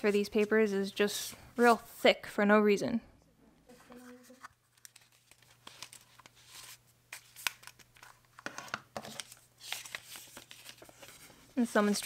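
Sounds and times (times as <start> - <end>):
cardboard and paper rustling: 3.7 - 12.0.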